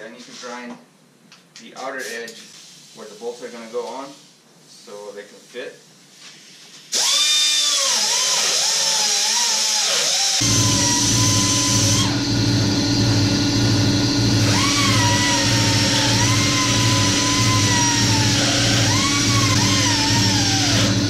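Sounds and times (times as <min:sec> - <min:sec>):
air die grinder whining: 0:07.0 - 0:21.0
steady low hum: 0:10.4 - 0:21.0.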